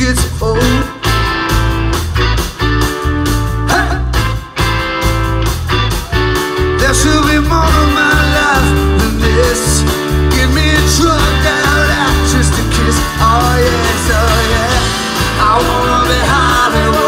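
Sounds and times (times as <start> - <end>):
person singing: 0.0 - 1.0, 6.6 - 17.0
live rock band playing: 0.0 - 17.0.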